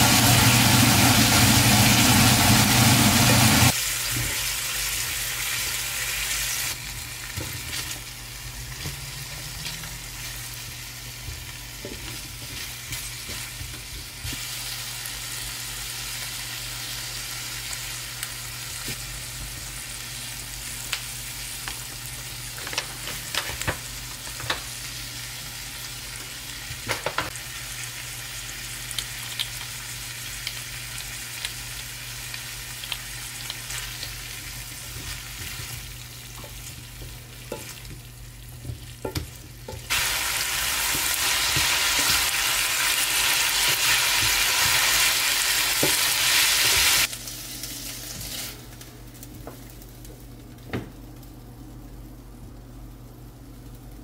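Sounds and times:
meat sizzling in a frying pan: 0.0s - 48.8s.

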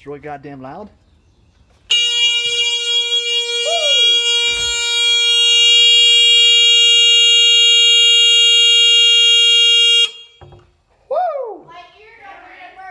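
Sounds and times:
electric horn steady tone: 1.9s - 10.5s.

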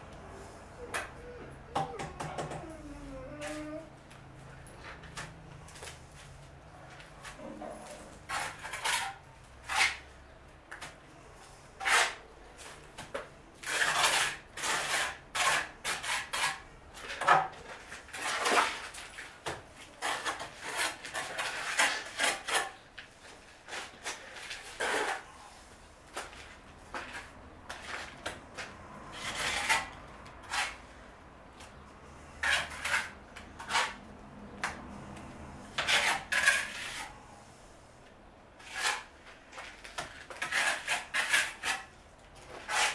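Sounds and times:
trowel scraping brickwork: 8.2s - 10.1s, 11.8s - 30.9s, 32.2s - 34.1s, 35.7s - 37.4s, 38.6s - 42.9s.

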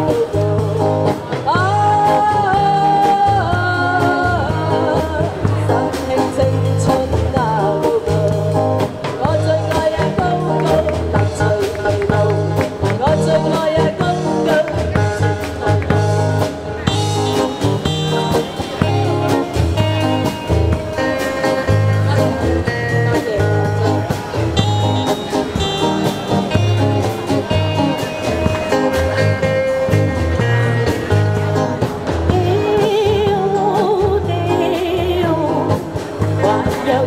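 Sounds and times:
woman singing into microphone: 0.0s - 15.7s, 32.2s - 37.0s
electric guitar: 0.0s - 37.0s
live band music: 0.0s - 37.0s
pulsing bass beat: 14.0s - 32.6s.

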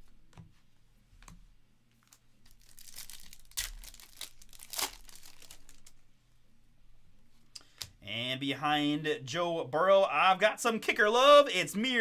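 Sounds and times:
foil pack crinkling and tearing: 2.1s - 6.0s.

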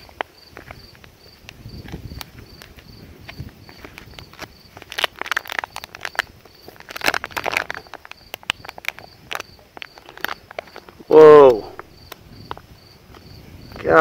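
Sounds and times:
insect chirping: 0.0s - 14.0s
plastic packaging crinkling: 3.8s - 11.1s.

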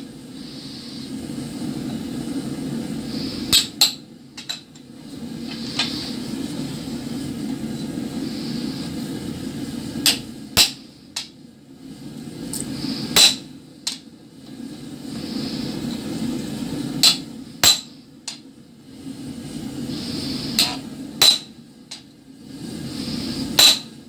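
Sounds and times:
steady low hum: 0.0s - 24.0s
hammer striking chisel on metal: 3.5s - 4.6s, 13.2s - 13.4s, 17.0s - 17.9s, 20.6s - 21.5s, 23.6s - 23.9s.

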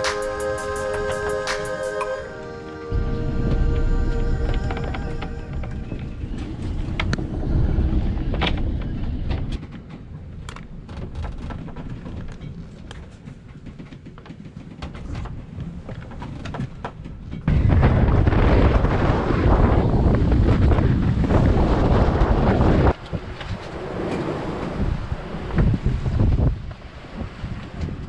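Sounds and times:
rushing waves: 0.0s - 9.5s, 18.0s - 28.0s
waves rumbling against hull: 2.6s - 28.0s
wind buffeting microphone: 2.9s - 28.0s.

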